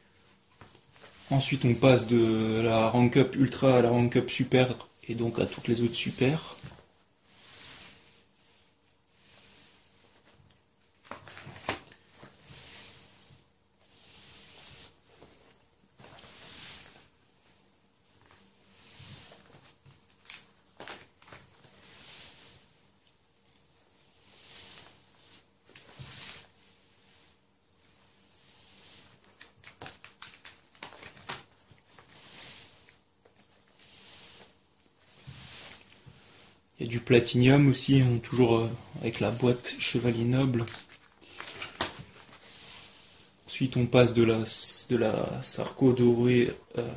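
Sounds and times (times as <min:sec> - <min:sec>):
soft swishes of pages: 0:00.0 - 0:46.9
plastic pages rustling: 0:10.4 - 0:12.3, 0:19.4 - 0:21.6, 0:29.1 - 0:32.1, 0:39.0 - 0:42.4.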